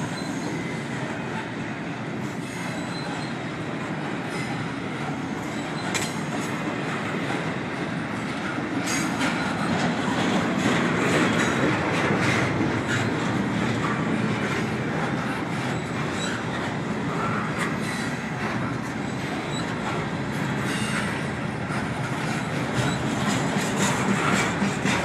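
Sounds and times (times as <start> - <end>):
high wheel squeaks: 0.0 - 0.9, 2.3 - 3.6, 4.2 - 7.5, 14.9 - 18.4, 19.0 - 20.0, 20.6 - 25.0
train wheels rumbling on rail: 0.0 - 25.0
clicks and clanks: 5.8 - 6.6.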